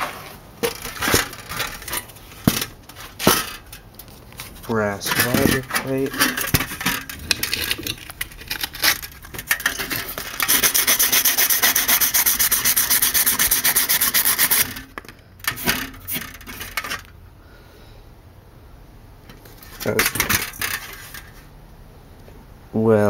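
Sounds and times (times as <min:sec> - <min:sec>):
fast rasping rub: 0:10.0 - 0:14.8.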